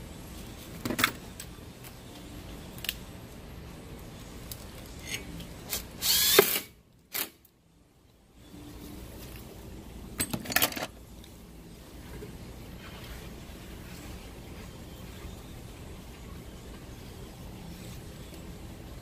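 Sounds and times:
cordless drill driving a screw: 6.0 - 7.3.

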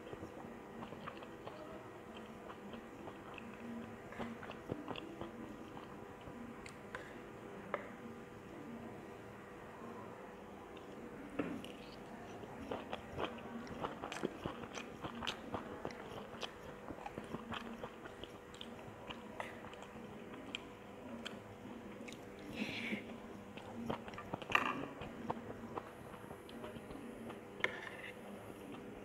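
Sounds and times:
person chewing rice: 0.0 - 6.8, 11.6 - 29.0.

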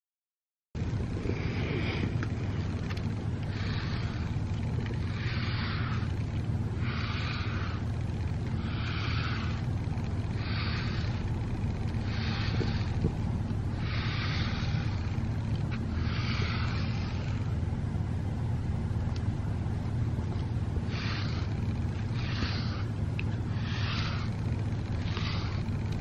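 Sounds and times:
steady low hum: 0.8 - 26.0
brush swishing through cat fur: 20.9 - 22.9.

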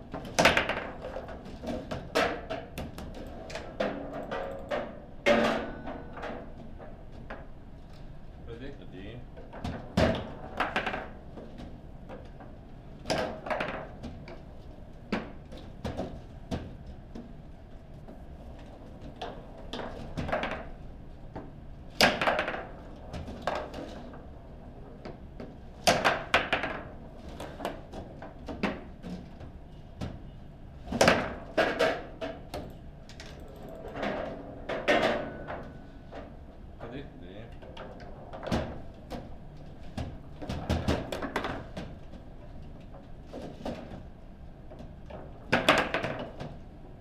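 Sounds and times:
foosball striking plastic players: 0.1 - 7.5, 9.4 - 17.3, 19.2 - 24.3, 25.0 - 32.8, 33.8 - 36.4, 37.6 - 44.1, 44.8 - 46.6
foosball rods banging: 0.2 - 7.5, 9.4 - 11.6, 13.0 - 16.8, 19.2 - 20.8, 22.0 - 24.3, 25.0 - 29.4, 30.9 - 32.6, 33.7 - 36.4, 37.5 - 44.1, 45.1 - 46.6.

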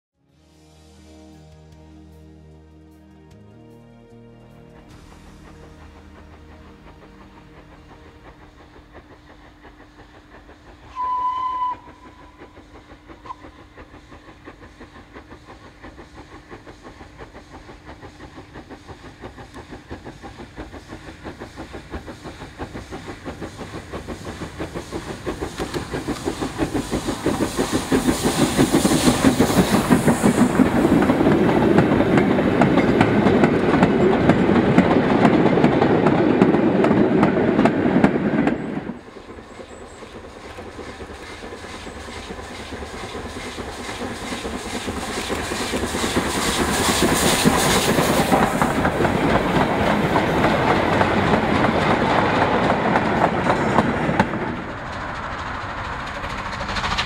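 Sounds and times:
rhythmic exhaust beats: 0.5 - 11.0, 11.8 - 37.8
train running noise: 0.5 - 57.0
steam hiss: 4.9 - 35.6, 36.4 - 57.0
steam locomotive whistle: 10.8 - 12.6, 13.2 - 13.6.

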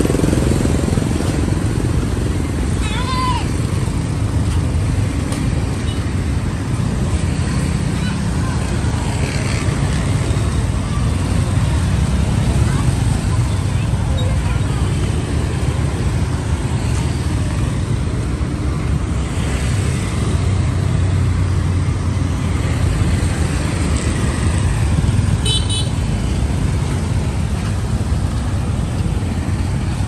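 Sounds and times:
motorbikes and cars passing: 0.0 - 30.0
vehicle horn tooting: 25.4 - 26.0.

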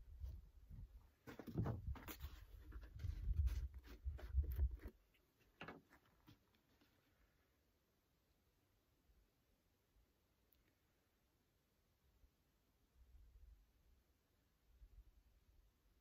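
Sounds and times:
plastic jugs knocking and clicking: 1.2 - 4.8.

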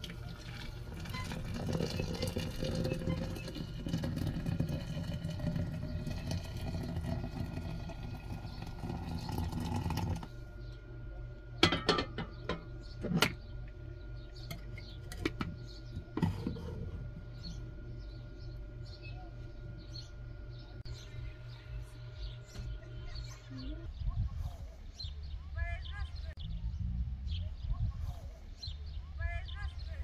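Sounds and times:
hot water pouring into glass: 0.0 - 10.3
lid clinking on glass press: 11.6 - 13.3
kettle set down: 11.6 - 13.4, 14.5 - 16.8.

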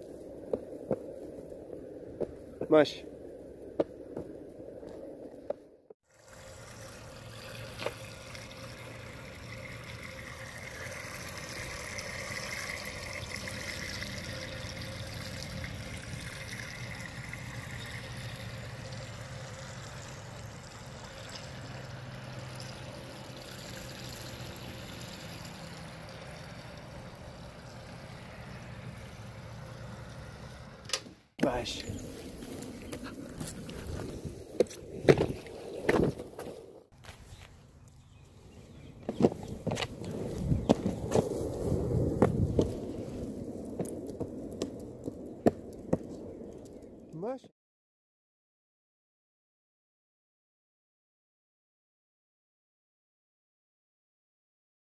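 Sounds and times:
water trickling into metal bowl: 6.1 - 28.5.

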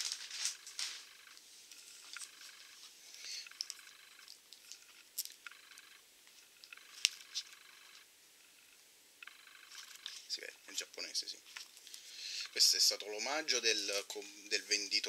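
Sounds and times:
pages rustling and crinkling: 0.0 - 1.4.

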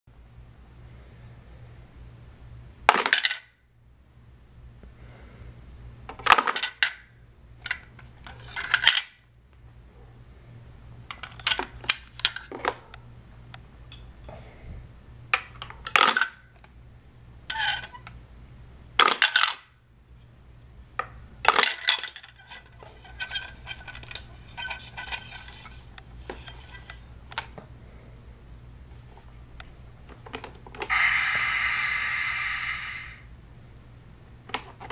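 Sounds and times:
plastic toy pieces clattering: 2.9 - 3.4, 6.2 - 7.0, 7.6 - 9.1, 15.6 - 16.4, 19.0 - 19.7, 21.4 - 27.5.

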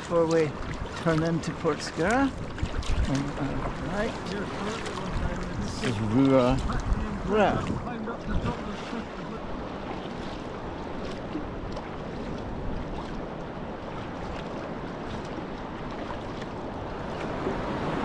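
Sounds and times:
paddle splashes: 0.0 - 18.0
small waves washing against hull: 0.0 - 18.0
wind buffeting microphone: 0.0 - 18.0.

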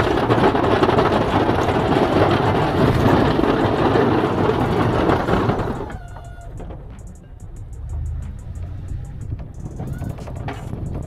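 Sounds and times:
plow blade scraping snow: 0.0 - 6.0
truck engine: 0.0 - 11.0.

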